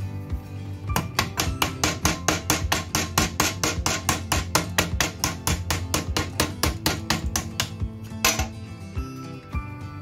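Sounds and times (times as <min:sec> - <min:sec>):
background music: 0:00.0 - 0:10.0
hammer tapping on metal: 0:00.9 - 0:08.6.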